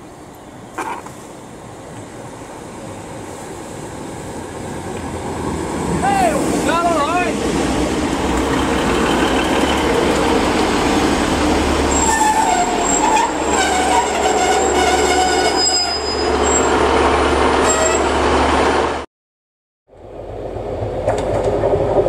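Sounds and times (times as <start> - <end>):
diesel train rumbling past: 0.0 - 19.1, 20.0 - 22.0
wheels squealing: 11.8 - 16.8.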